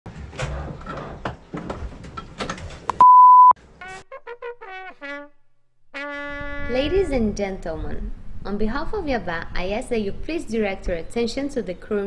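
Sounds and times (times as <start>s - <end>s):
loud steady beep: 2.9s - 3.6s.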